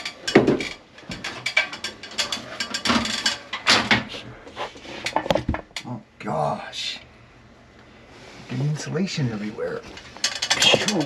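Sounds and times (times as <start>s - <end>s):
ladder clicking and rattling: 0.0s - 4.2s, 9.8s - 11.0s.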